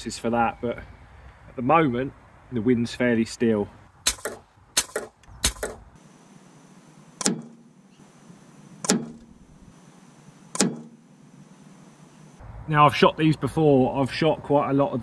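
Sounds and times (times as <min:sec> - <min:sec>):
quick clicks: 0:04.1 - 0:05.8
slugs hitting metal target: 0:04.1 - 0:05.8, 0:07.2 - 0:07.7, 0:08.8 - 0:09.3, 0:10.6 - 0:11.0.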